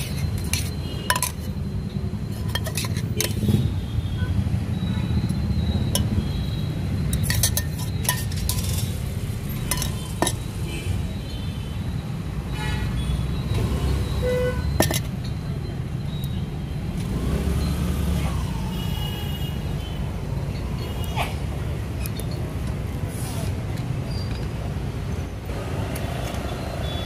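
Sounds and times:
spoon clinking against metal mug: 0.0s - 3.5s, 5.9s - 6.2s, 7.1s - 10.5s, 14.8s - 15.4s
low rumble of street traffic: 0.0s - 27.0s.

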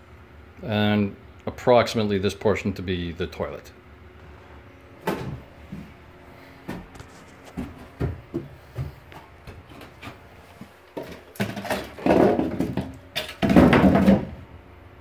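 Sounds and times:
faint steady hum: 0.0s - 15.0s
footsteps on wooden boards: 6.6s - 11.3s.

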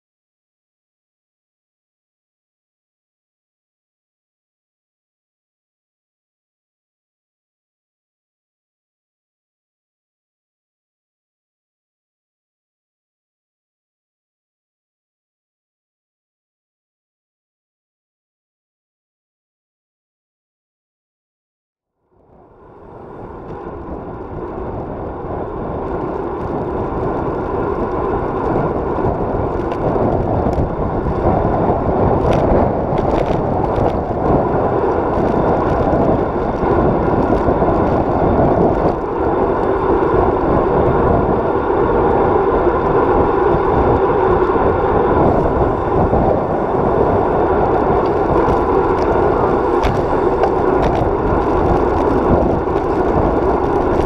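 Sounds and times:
bike rolling rumble: 22.2s - 54.0s
wind noise: 22.2s - 54.0s.

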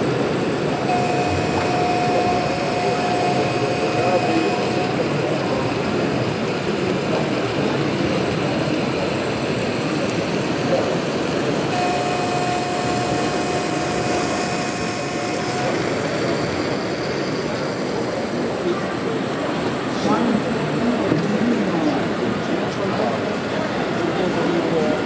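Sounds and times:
steady high tone: 0.0s - 7.8s, 9.9s - 19.7s
model train running: 0.0s - 25.0s.

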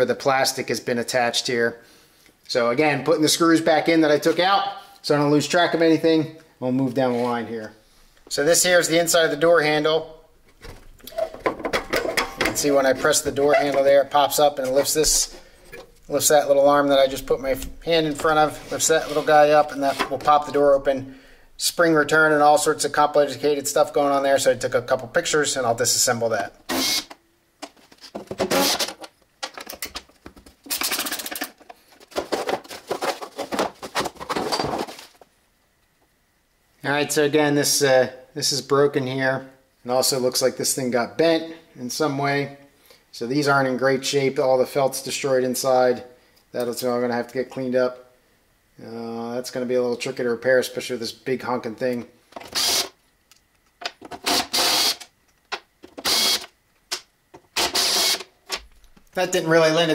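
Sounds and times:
cordless drill on screw: 26.7s - 27.1s, 52.5s - 53.0s, 54.3s - 55.1s, 56.0s - 56.5s, 57.6s - 58.3s
metal parts clattering: 30.6s - 33.7s.

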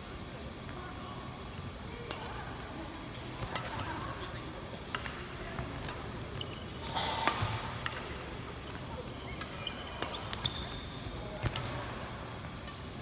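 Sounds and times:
racket striking shuttlecock: 3.4s - 8.8s, 11.4s - 12.9s.

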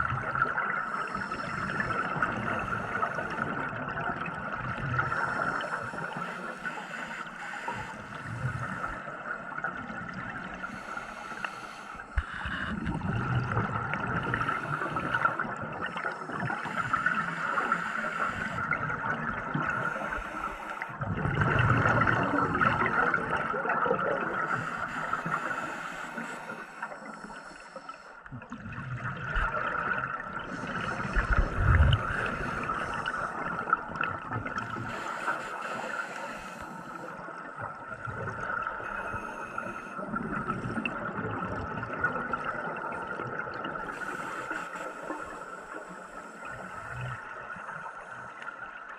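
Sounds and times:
diver inhaling through regulator: 5.0s - 9.2s, 10.5s - 18.8s, 19.6s - 21.0s, 24.2s - 28.2s, 29.6s - 33.8s, 34.6s - 37.5s, 38.8s - 40.9s, 43.8s - 48.4s
bubbling exhalations underwater: 12.2s - 15.6s, 21.0s - 24.4s, 28.4s - 34.8s.

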